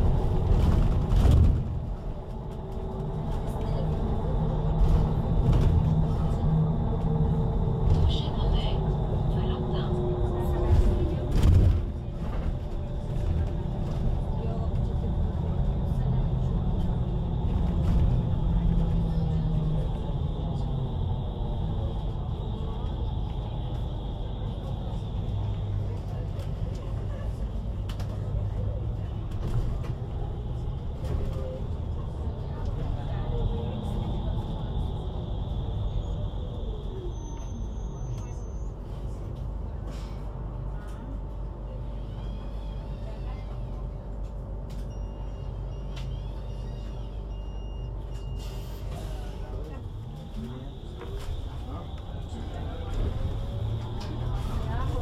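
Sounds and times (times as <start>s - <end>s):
low hum: 0.0s - 42.2s
trolleybus rumble: 0.0s - 55.0s.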